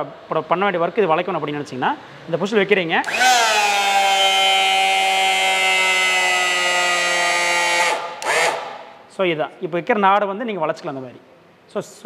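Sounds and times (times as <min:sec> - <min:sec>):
electric motor whining: 0:03.1 - 0:08.8.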